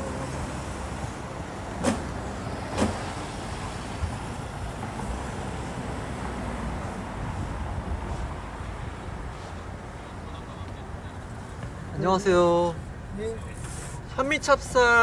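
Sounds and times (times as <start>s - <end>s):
cars driving past: 0.0s - 15.0s.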